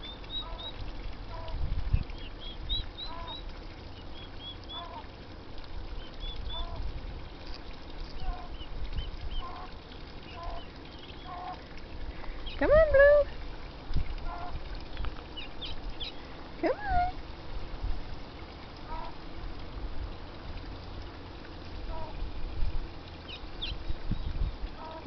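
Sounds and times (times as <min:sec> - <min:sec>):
poults peeping: 0:00.0 - 0:05.1, 0:06.0 - 0:06.8, 0:08.1 - 0:11.6.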